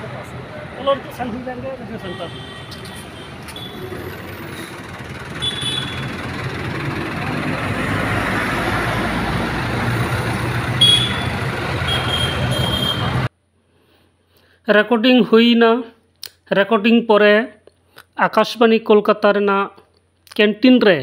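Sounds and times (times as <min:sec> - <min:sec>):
vehicle engine and road noise: 0:00.0 - 0:14.2.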